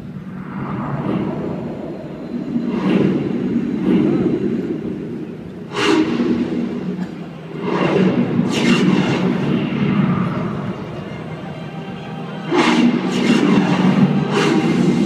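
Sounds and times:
low rumble: 0.0s - 11.4s
loud whooshing surges: 0.0s - 15.0s.

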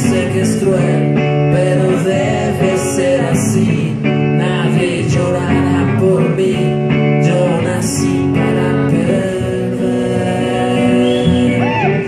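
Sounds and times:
electric guitar chords: 0.0s - 12.0s.

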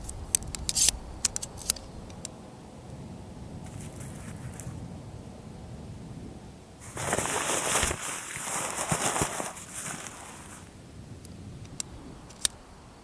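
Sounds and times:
tent fabric rustling: 6.8s - 10.7s.

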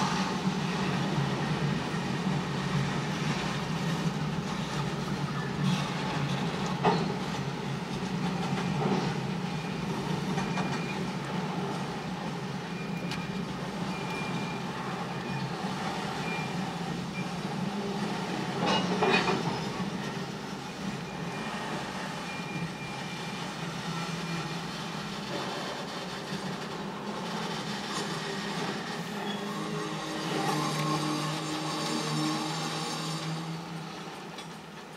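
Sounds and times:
train wheels rumbling and clacking: 0.0s - 34.9s
faint high squeal: 29.1s - 33.7s.

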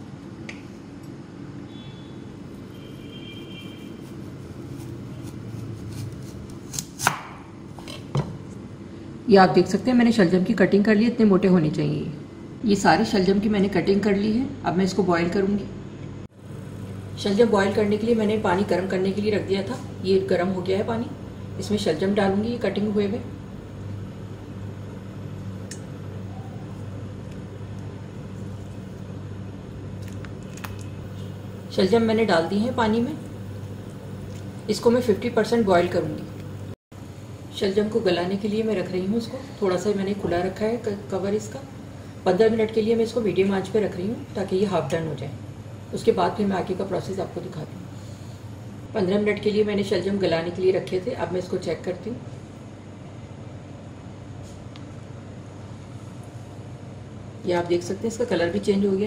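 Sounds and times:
steady low hum: 0.0s - 59.0s
knife slicing turnip: 4.7s - 7.4s.

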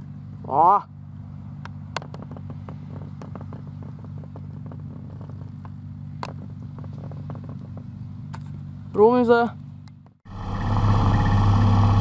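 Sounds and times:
distant engine humming: 9.6s - 12.0s.

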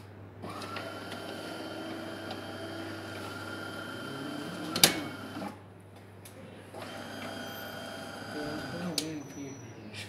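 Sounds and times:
coffee machine humming: 0.4s - 5.6s, 6.8s - 9.0s.

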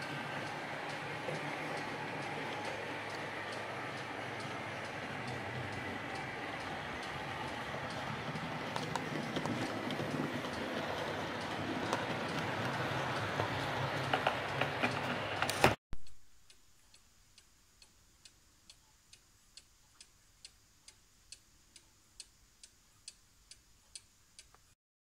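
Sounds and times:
clock ticking faintly: 0.0s - 15.1s, 16.0s - 24.8s
model train clicking along track: 0.0s - 15.8s.

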